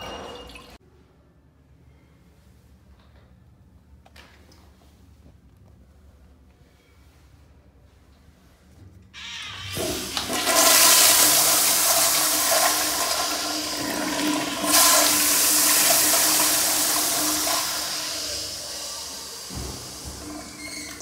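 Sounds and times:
toilet flushing water rush: 0:09.2 - 0:21.0
flush valve knock: 0:19.2 - 0:21.0.

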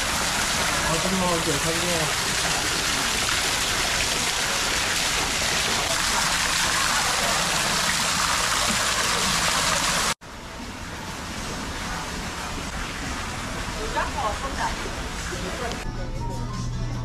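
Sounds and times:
water pouring into pool: 0:00.0 - 0:10.2.

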